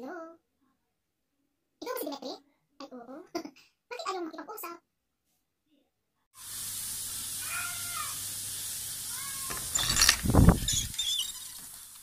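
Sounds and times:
faint cat meows: 7.4 - 8.2, 9.1 - 9.7
phone recording hiss: 8.8 - 12.0.

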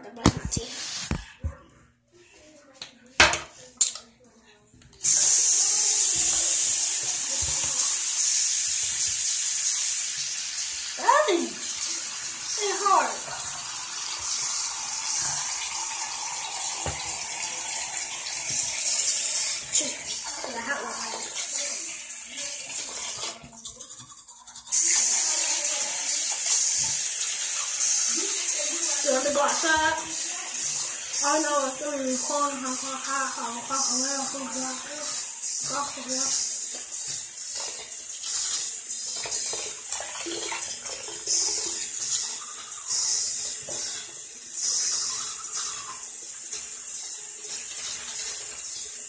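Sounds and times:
sink tap running water: 5.0 - 49.0.

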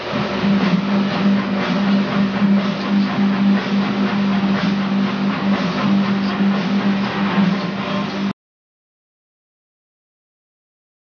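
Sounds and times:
belt grinder humming: 0.0 - 8.3.

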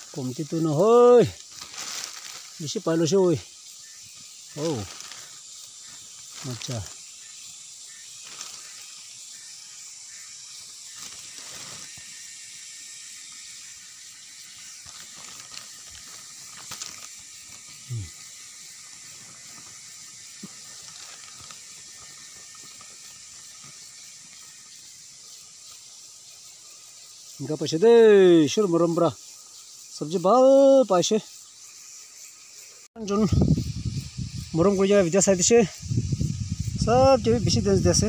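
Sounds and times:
insects hissing: 0.0 - 38.0
plastic sack rustling: 1.4 - 2.6, 4.6 - 5.4, 8.2 - 8.8, 10.9 - 12.0, 14.8 - 17.6, 20.5 - 23.0.

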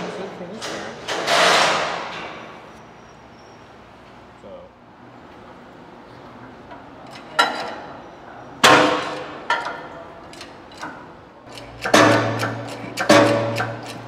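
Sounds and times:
sharp metallic clanks: 10.8 - 14.0.

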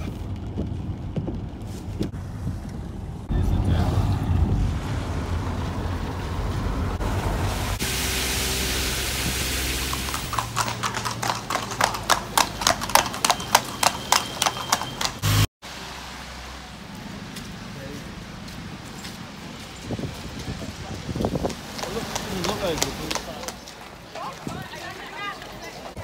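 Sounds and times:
hooves clip-clopping on wet road: 0.0 - 2.1, 7.9 - 15.5, 16.4 - 26.0.

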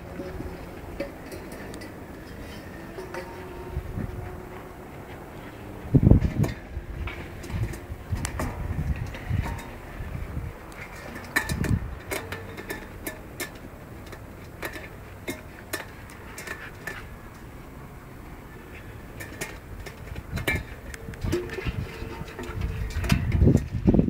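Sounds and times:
metal dog bowl clinking: 1.0 - 3.8.

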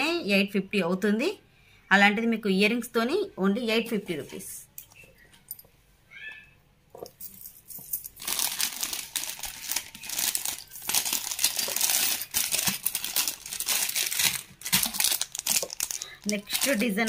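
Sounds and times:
plastic packets crinkling: 7.8 - 17.0.

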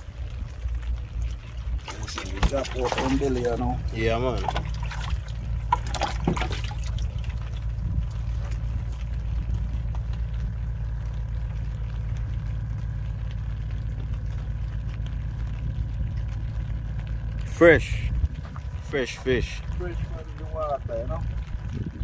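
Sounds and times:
water splashing in plastic bucket: 0.0 - 17.4
steady low rumble: 0.0 - 22.0.

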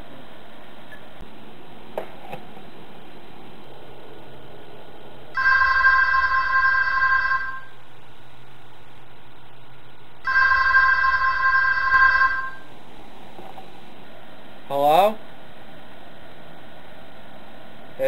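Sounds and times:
landline telephone ringing: 5.4 - 7.7, 10.2 - 12.7.

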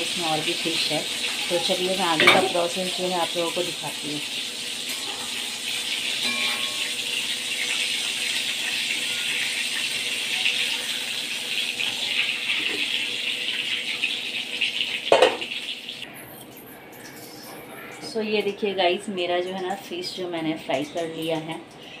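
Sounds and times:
fish sizzling in hot oil: 0.0 - 16.1.

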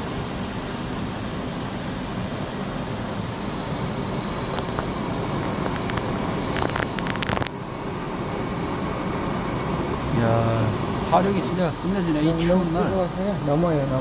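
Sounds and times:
broth boiling: 0.0 - 14.0
gas burner rushing: 0.0 - 14.0
sharp clicks and pops: 4.5 - 4.9, 5.5 - 7.6.

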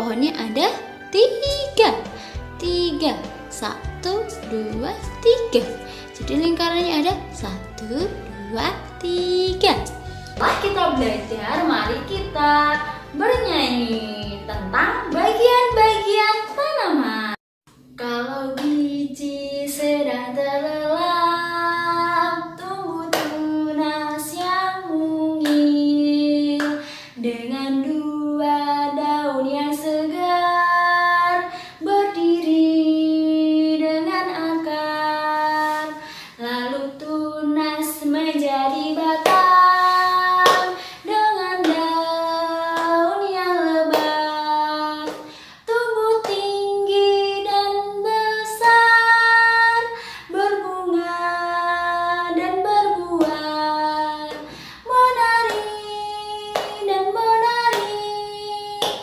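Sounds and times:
woman singing children's song: 0.0 - 59.0
hands clapping: 10.4 - 11.2, 40.4 - 40.8, 55.4 - 55.8, 56.5 - 56.8, 57.7 - 58.0, 58.8 - 59.0.

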